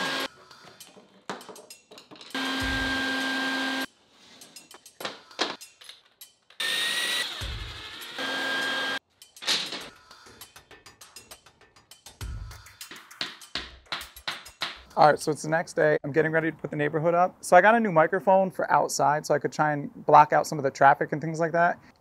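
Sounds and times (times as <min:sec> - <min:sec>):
shop vacuum running: 0:00.0 - 0:00.3, 0:02.4 - 0:03.9, 0:06.7 - 0:09.0
sharp clacks and knocks: 0:12.8 - 0:14.9.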